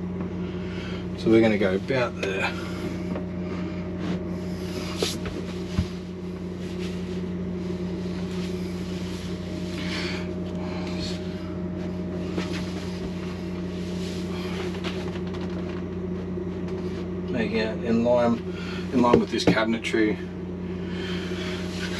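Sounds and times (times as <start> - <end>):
low machine hum: 0.0 - 21.9
scuffs and scrapes on floor: 4.0 - 9.9, 11.8 - 15.0.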